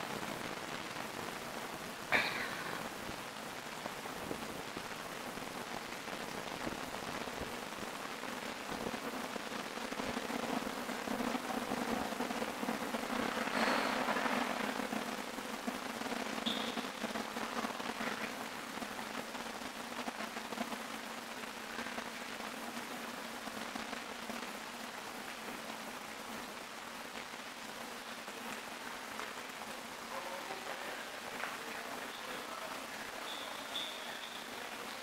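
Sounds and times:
rushing noise in subway station: 0:00.0 - 0:03.2, 0:30.0 - 0:35.0.

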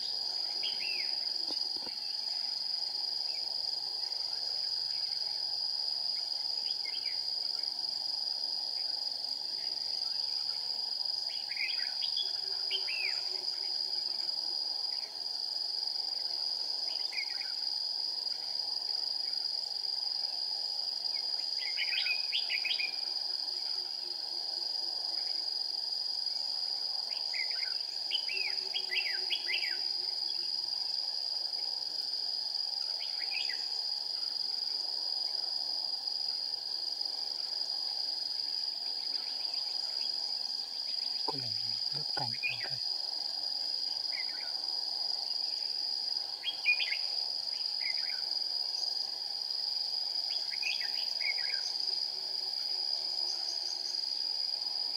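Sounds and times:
insects trilling: 0:00.0 - 0:54.9
birds singing warbled phrases: 0:41.2 - 0:42.8.

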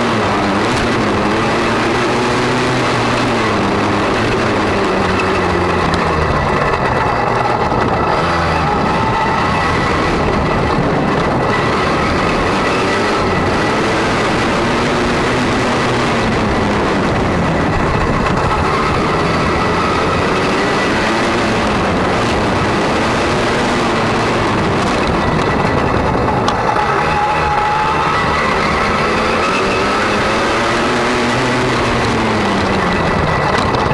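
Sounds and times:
motocross bike engine revving: 0:00.0 - 0:33.9
wind noise on microphone: 0:00.0 - 0:33.9.

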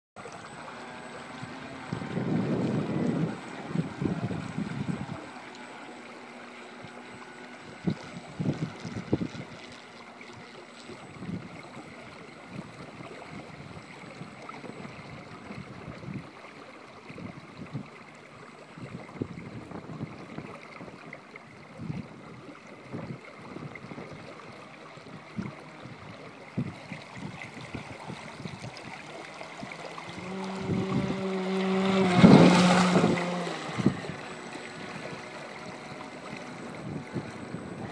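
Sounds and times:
faint high whine: 0:00.2 - 0:37.9
small waves: 0:00.2 - 0:37.9
wind buffeting microphone: 0:01.3 - 0:05.4, 0:06.8 - 0:09.8, 0:25.1 - 0:29.0, 0:29.6 - 0:37.9
rush of wind: 0:01.4 - 0:05.4, 0:07.6 - 0:09.7, 0:30.1 - 0:37.9.

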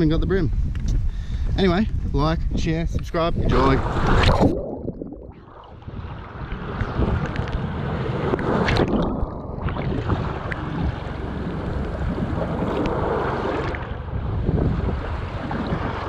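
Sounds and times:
wind buffeting microphone: 0:00.0 - 0:16.0
waves washing against pier: 0:05.4 - 0:16.0.

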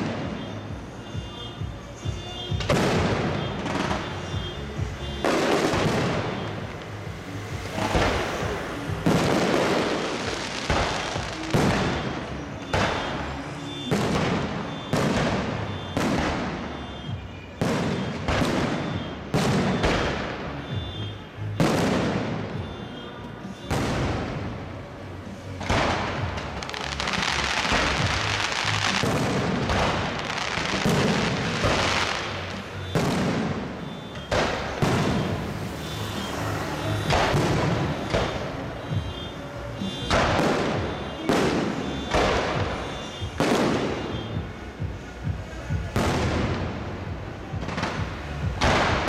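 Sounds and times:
music: 0:00.0 - 0:49.0.

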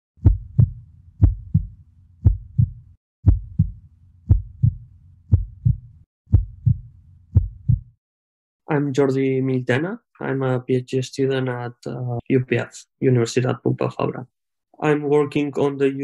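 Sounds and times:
heartbeat thumps: 0:00.2 - 0:08.0.

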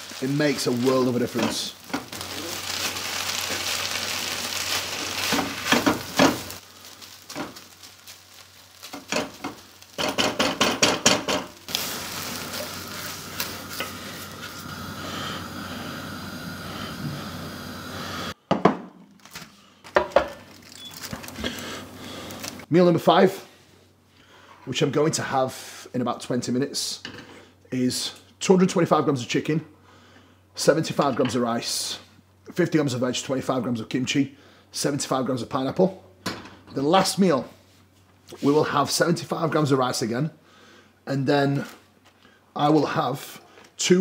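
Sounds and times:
rice sizzling in pan: 0:00.0 - 0:18.4, 0:20.8 - 0:22.7.

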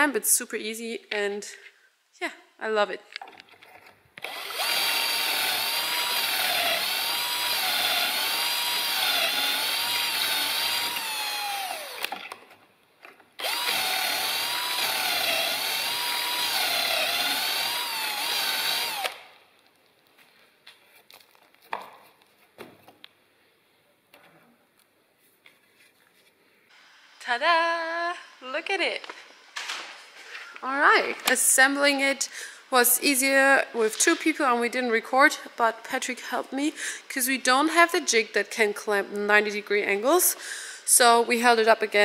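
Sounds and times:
cordless drill motor whining: 0:04.2 - 0:12.2, 0:13.4 - 0:19.3.

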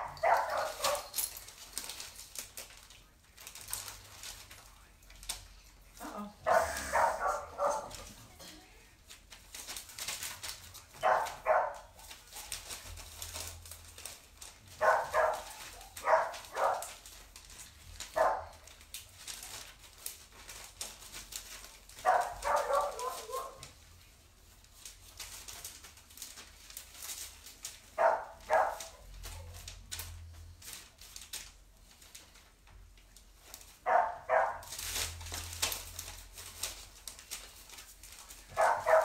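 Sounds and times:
dog barking: 0:00.0 - 0:01.2, 0:06.4 - 0:08.1, 0:11.0 - 0:12.0, 0:14.8 - 0:17.0, 0:18.1 - 0:18.6, 0:22.0 - 0:23.7, 0:28.0 - 0:29.5, 0:33.8 - 0:34.7, 0:38.5 - 0:39.0.

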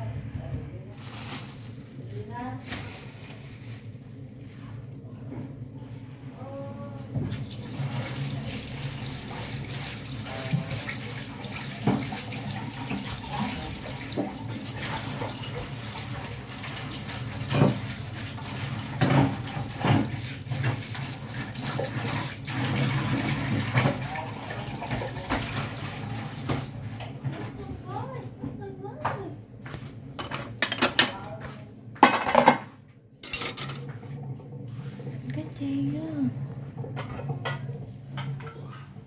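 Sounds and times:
tap running into sink: 0:09.3 - 0:14.6.

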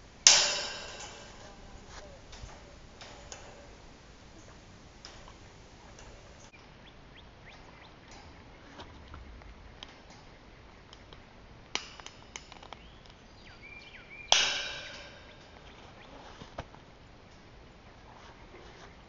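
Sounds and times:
metal panel ringing: 0:00.0 - 0:06.5, 0:14.3 - 0:15.9
wire snapping: 0:00.0 - 0:06.5, 0:10.9 - 0:13.2, 0:14.3 - 0:17.5.

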